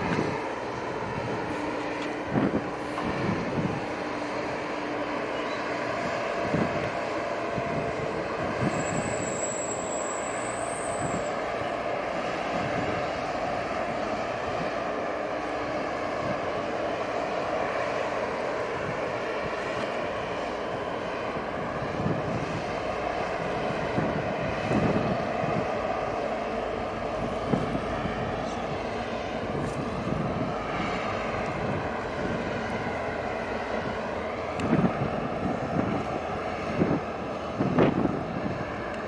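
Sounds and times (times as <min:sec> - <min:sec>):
ship engine drone: 0:00.0 - 0:39.0
thin high whistle: 0:08.7 - 0:11.4.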